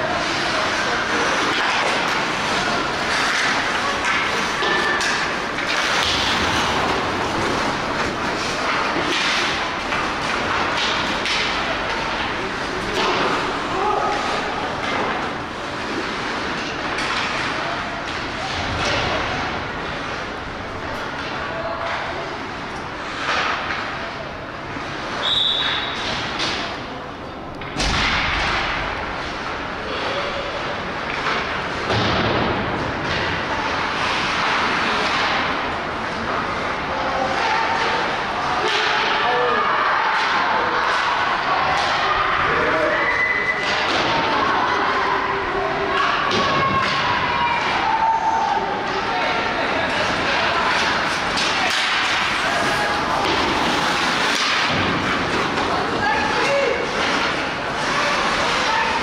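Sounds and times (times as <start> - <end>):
hockey sticks and puck clacking: 0.0 - 59.0
whistle blast: 25.2 - 25.9
skate blades scraping ice: 50.0 - 59.0.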